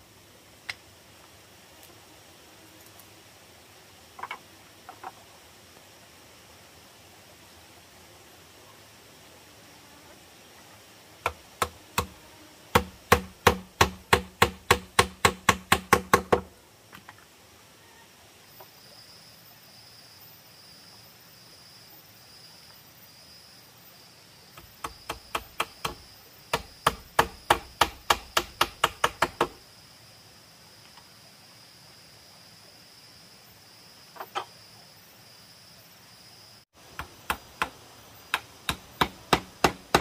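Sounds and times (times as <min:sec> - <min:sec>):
hammer striking bamboo: 0:11.2 - 0:16.5, 0:24.6 - 0:29.6, 0:36.9 - 0:40.0.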